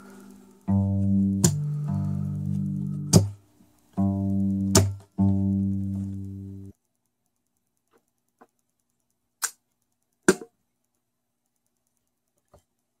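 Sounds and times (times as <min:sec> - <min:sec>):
guitar handling clicks: 0:00.6 - 0:06.7
guitar knocks: 0:00.7 - 0:03.4, 0:04.0 - 0:06.6.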